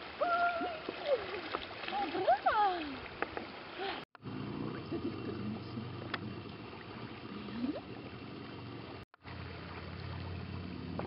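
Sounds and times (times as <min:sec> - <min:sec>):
faint water sounds: 0:00.0 - 0:11.0
distant motorboat engine hum: 0:04.2 - 0:11.0.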